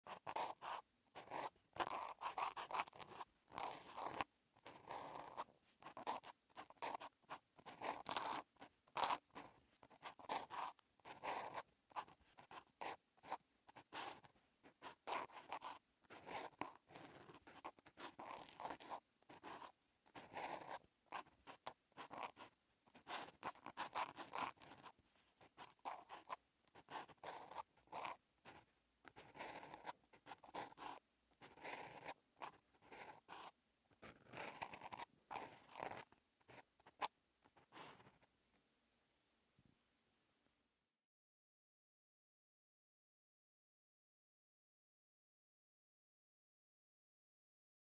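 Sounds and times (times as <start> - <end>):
felt tip scratching on paper: 0.0 - 38.3.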